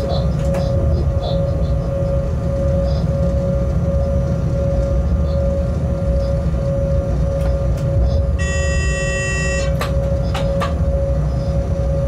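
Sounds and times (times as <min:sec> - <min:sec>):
locomotive rumble and hum: 0:00.0 - 0:12.0
horn-like tone: 0:08.3 - 0:09.8.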